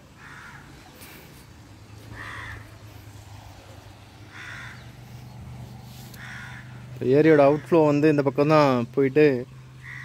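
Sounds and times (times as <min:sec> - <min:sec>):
crow cawing: 0:00.1 - 0:01.2, 0:02.0 - 0:02.9, 0:04.3 - 0:05.1, 0:06.1 - 0:08.0, 0:09.8 - 0:10.0.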